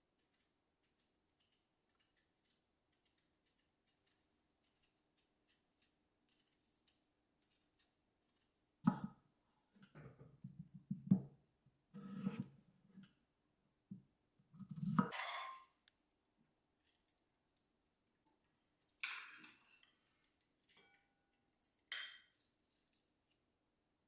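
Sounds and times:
knife slicing potato on board: 0:08.9 - 0:09.2, 0:12.0 - 0:13.1, 0:14.5 - 0:15.2.

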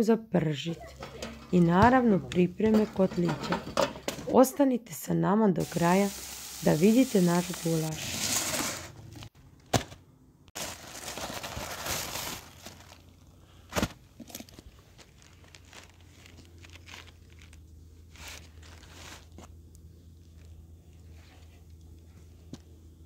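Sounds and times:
paper and cardboard rustling: 0:07.4 - 0:09.9, 0:10.6 - 0:13.1, 0:13.7 - 0:19.5.

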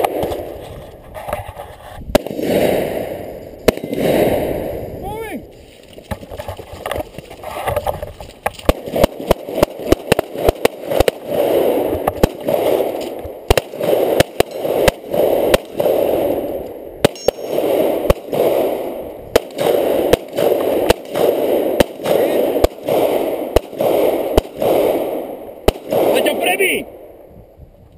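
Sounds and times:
pistol shots: 0:02.1 - 0:04.8, 0:08.5 - 0:27.1.

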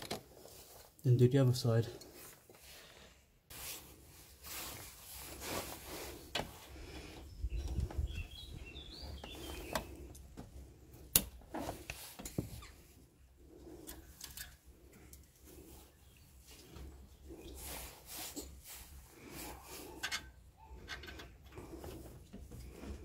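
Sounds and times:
plastic rustling and scraping: 0:03.5 - 0:08.1, 0:11.4 - 0:12.9
bird chirping: 0:07.2 - 0:10.2.

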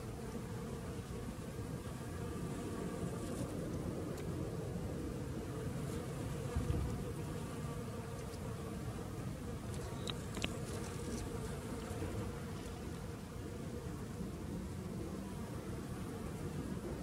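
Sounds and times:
honeybees buzzing: 0:04.8 - 0:17.0.

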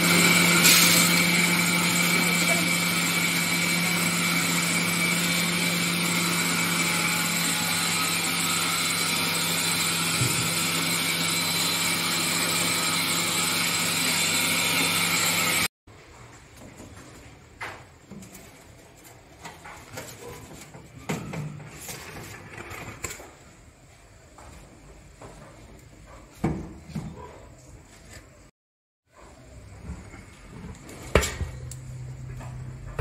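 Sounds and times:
flour mill motor humming: 0:00.0 - 0:15.7.

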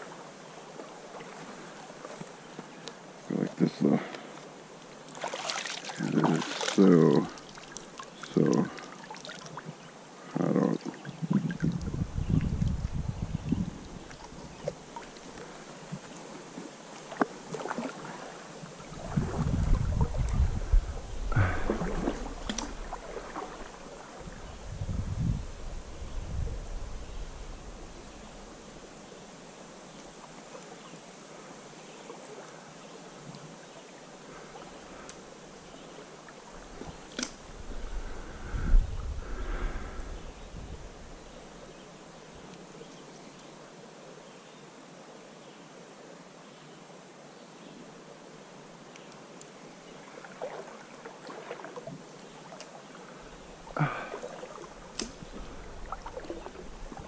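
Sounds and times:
creek flowing hiss: 0:00.0 - 0:57.0
stream water: 0:00.0 - 0:57.0
small splashes and clicks: 0:04.1 - 0:09.8, 0:21.7 - 0:23.7, 0:50.3 - 0:52.8, 0:54.1 - 0:57.0
small ticks: 0:07.4 - 0:08.6
wind rumble on microphone: 0:11.1 - 0:14.7, 0:18.9 - 0:23.6, 0:24.2 - 0:28.5, 0:36.6 - 0:41.4.

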